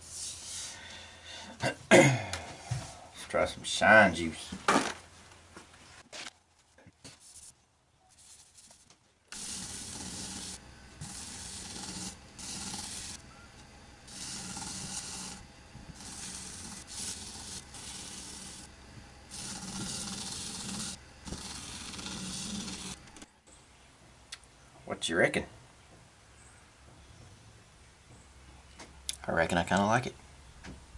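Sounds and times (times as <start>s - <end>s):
paper towel hissing rub on wood: 8.2s - 13.2s, 14.0s - 23.0s
lathe humming: 9.3s - 23.3s.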